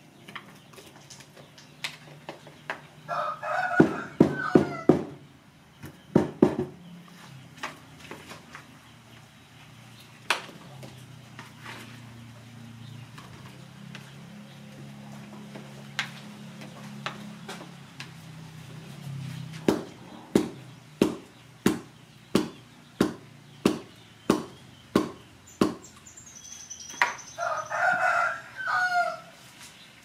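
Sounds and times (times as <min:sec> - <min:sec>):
rooster crowing: 0:03.1 - 0:05.2, 0:27.3 - 0:29.4.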